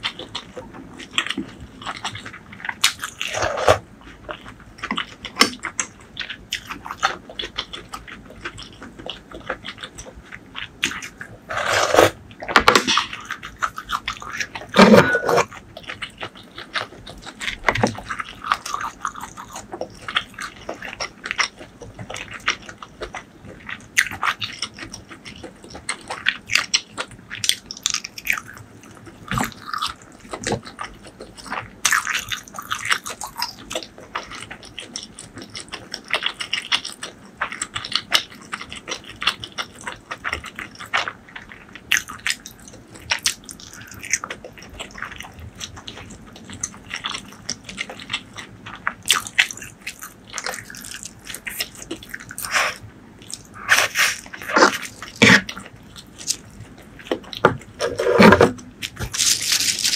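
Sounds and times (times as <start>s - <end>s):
wet chewing and mouth smacking: 0.0s - 59.9s
noodles slurped: 50.4s - 56.4s.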